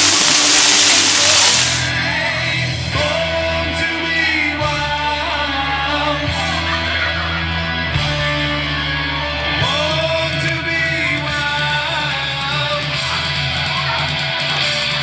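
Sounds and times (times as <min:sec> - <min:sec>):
rock song with singing: 0:00.0 - 0:06.4.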